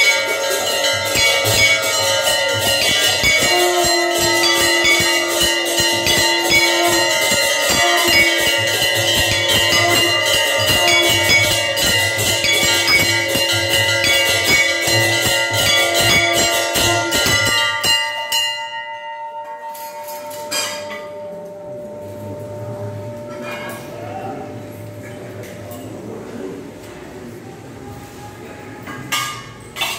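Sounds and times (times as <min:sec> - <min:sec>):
bell ringing rapidly: 0:00.0 - 0:19.3
conch shell blasts: 0:00.5 - 0:18.1.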